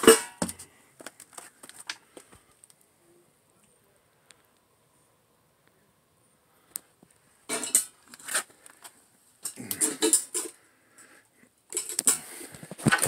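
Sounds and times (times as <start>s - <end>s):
household clutter clinking and rattling: 7.5s - 8.5s, 9.4s - 10.6s, 11.7s - 13.0s.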